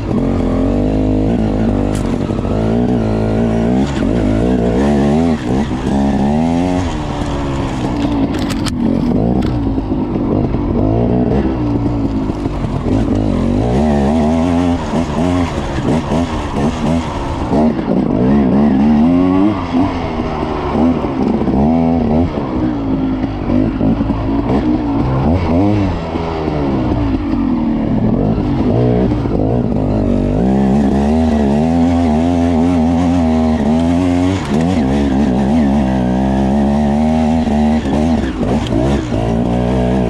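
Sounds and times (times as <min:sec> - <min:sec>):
dirt bike engine revving: 0:00.0 - 0:40.0.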